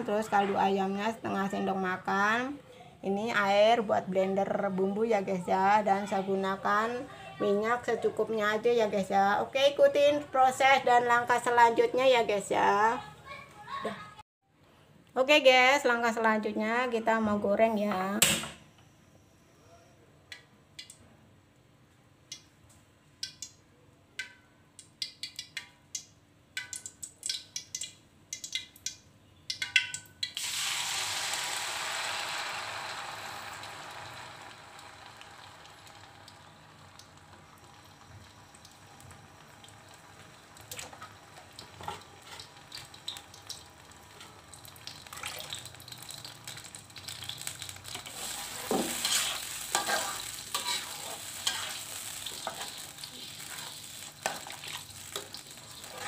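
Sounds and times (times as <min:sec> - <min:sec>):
hot oil popping: 0:24.2 - 0:56.0
paste sizzling in oil: 0:30.4 - 0:36.9, 0:43.9 - 0:56.0
wooden spatula scraping a wok: 0:47.9 - 0:54.8, 0:55.8 - 0:56.0.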